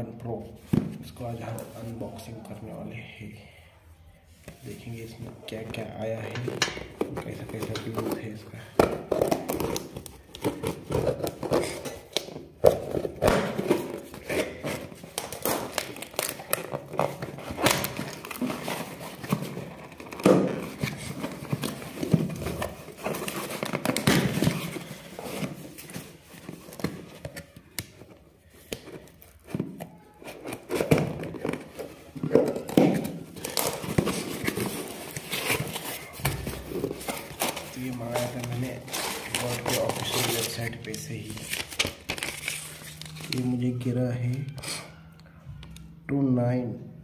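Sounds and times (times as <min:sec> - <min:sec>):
cardboard box opening and crinkling: 0:06.8 - 0:43.7
packing tape tearing: 0:09.1 - 0:28.0, 0:30.1 - 0:43.4.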